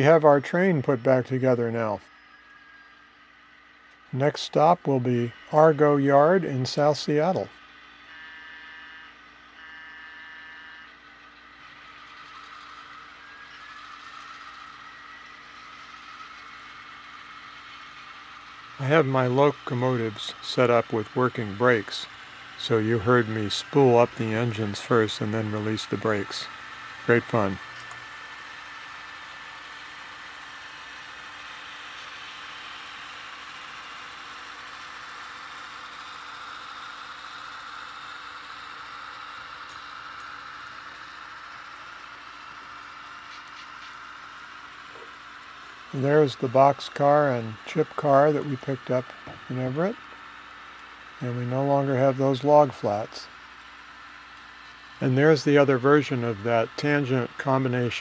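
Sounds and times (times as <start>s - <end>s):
high whine: 0.0s - 29.1s, 38.6s - 50.2s
model diesel locomotive engine sound: 0.0s - 58.0s.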